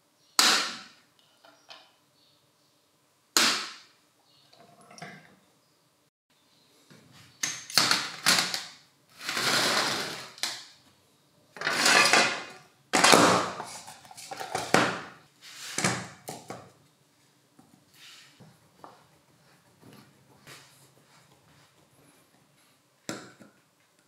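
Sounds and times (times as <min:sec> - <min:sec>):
metal parts clattering in tray: 0:11.6 - 0:13.4.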